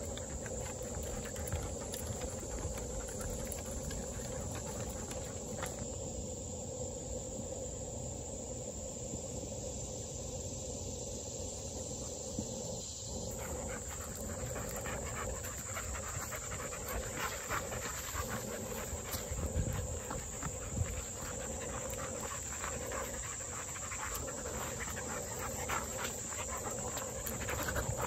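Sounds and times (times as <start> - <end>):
dogs panting: 0.0 - 5.9, 13.2 - 28.0
outdoor background noise: 0.0 - 28.0.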